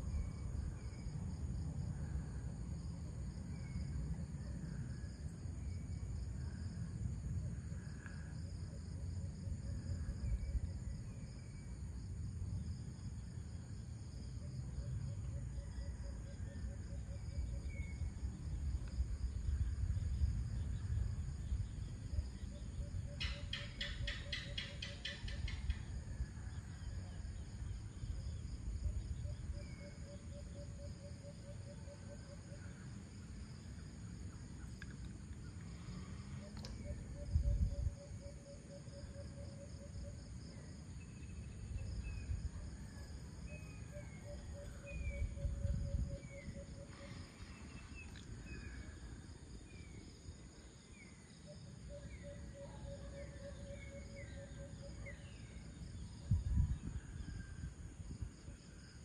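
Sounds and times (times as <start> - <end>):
crickets chirping: 0.0 - 59.0
bird chirps: 23.2 - 25.8.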